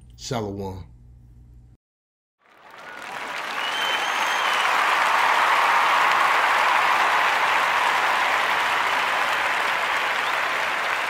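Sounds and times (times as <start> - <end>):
crowd applauding: 2.4 - 11.0.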